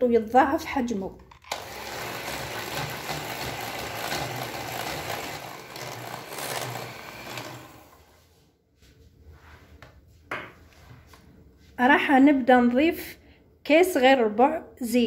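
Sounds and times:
electric hand mixer whipping: 1.5 - 8.2.

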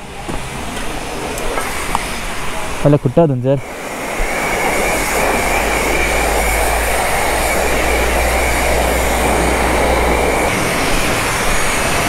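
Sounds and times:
pressure washer spraying water: 0.4 - 12.0
low hum: 3.6 - 12.0.

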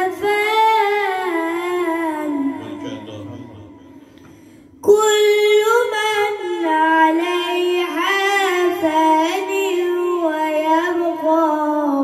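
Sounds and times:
person chanting melodically: 0.0 - 4.3.

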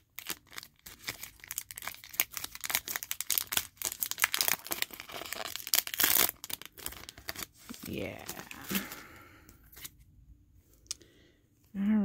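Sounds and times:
foil wrapper crinkling and tearing: 0.0 - 9.2.

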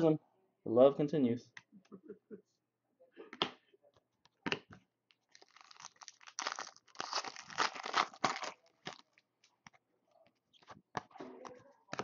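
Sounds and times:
foil wrapper tearing and crinkling: 5.3 - 9.2.

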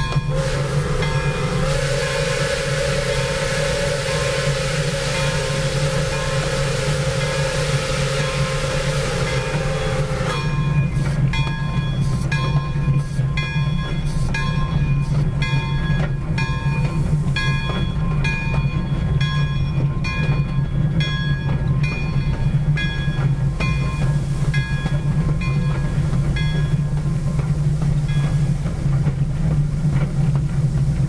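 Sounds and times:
steam whistle blast: 0.0 - 11.0
locomotive bell ringing: 0.0 - 27.3, 28.0 - 28.6.

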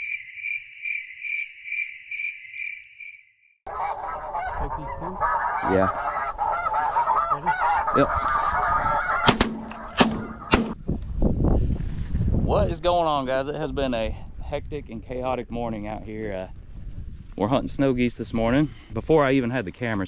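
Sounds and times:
high pulsed chirp: 0.0 - 3.3
geese calling and honking: 3.7 - 10.8
wind rumble: 3.7 - 19.2
shotgun shots: 9.2 - 10.8.

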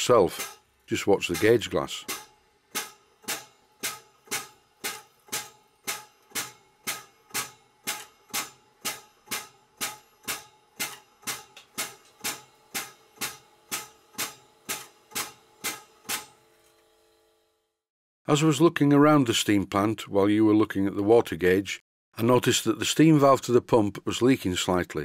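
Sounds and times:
pump clicking with metallic ring: 0.0 - 16.2.

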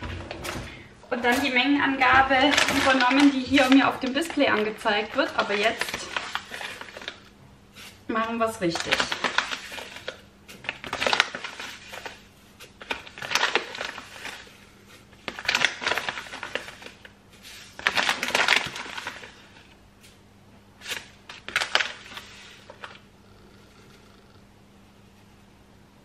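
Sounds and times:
plastic pouch crinkling: 1.3 - 8.0, 8.6 - 19.7, 20.8 - 23.0.

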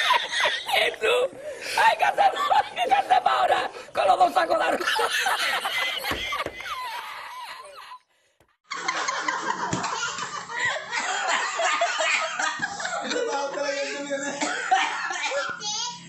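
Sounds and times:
man laughing hard: 0.0 - 8.0.

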